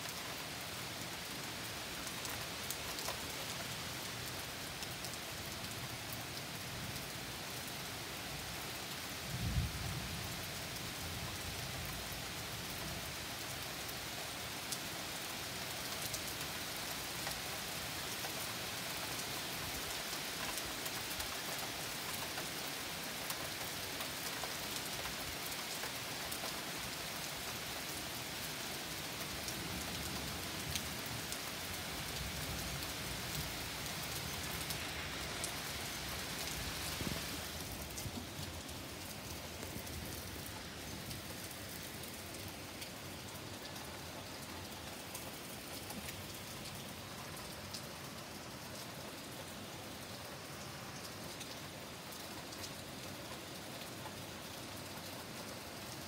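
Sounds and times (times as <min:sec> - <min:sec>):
steady rain: 0:00.0 - 0:56.0
low rumble of thunder: 0:09.3 - 0:10.0.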